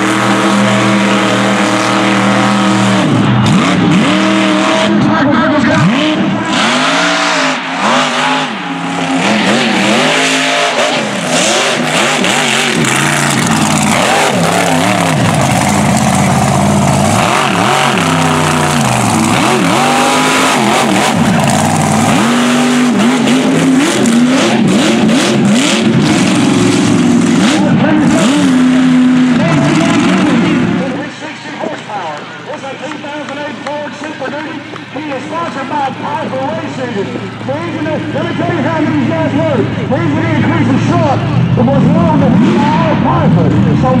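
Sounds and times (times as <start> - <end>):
truck engines revving hard: 0.0 - 44.0
tyres churning mud: 5.8 - 30.9.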